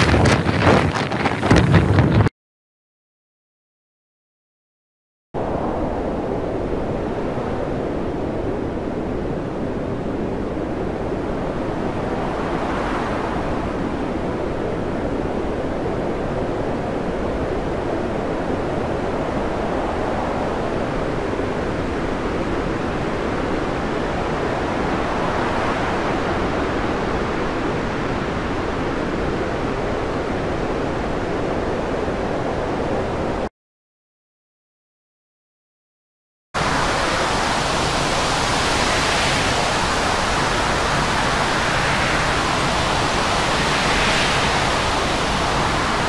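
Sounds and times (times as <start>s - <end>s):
heavy seas breaking over bow: 0.0s - 2.3s, 36.6s - 46.0s
storm wind: 0.0s - 2.3s, 5.4s - 33.5s, 36.6s - 46.0s.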